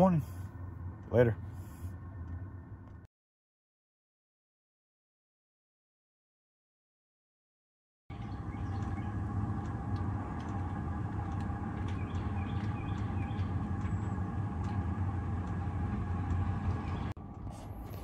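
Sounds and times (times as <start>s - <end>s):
fan whirring: 8.1s - 18.0s
heater humming: 8.1s - 18.0s.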